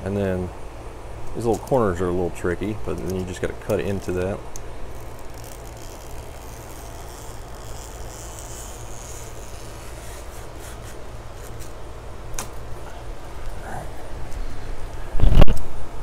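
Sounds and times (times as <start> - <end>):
knife scraping rasp: 5.0 - 11.8.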